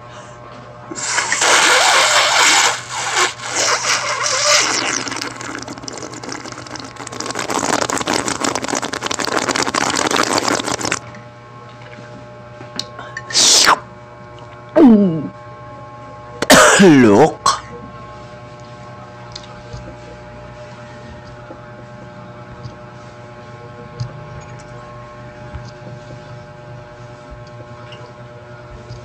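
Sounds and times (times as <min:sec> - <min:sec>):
slurping through a straw: 0:00.9 - 0:11.0, 0:13.3 - 0:13.8.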